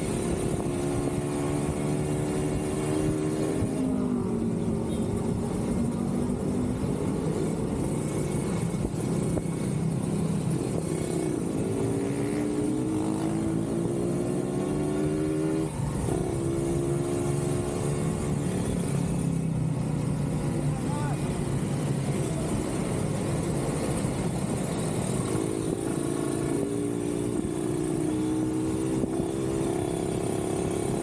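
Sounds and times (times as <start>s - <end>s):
motorcycle engine accelerating: 5.3s - 19.4s, 21.6s - 31.0s.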